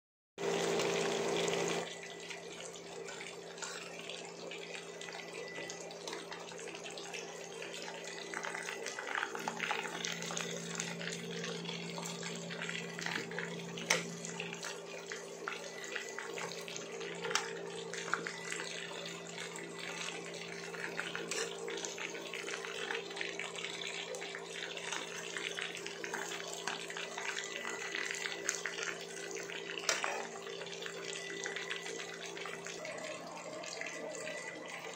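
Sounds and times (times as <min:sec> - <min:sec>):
chicken sizzling in oil: 0:00.4 - 0:34.9.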